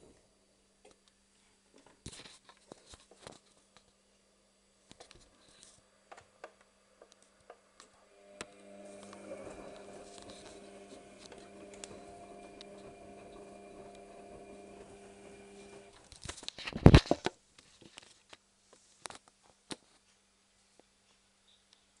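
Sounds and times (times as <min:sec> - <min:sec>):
washing machine motor humming: 0:08.1 - 0:16.1.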